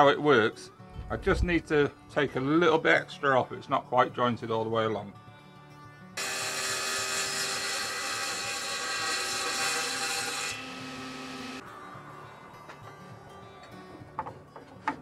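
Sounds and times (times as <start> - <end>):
saw blade whine: 6.2 - 11.6
table saw cutting wood: 6.2 - 11.6.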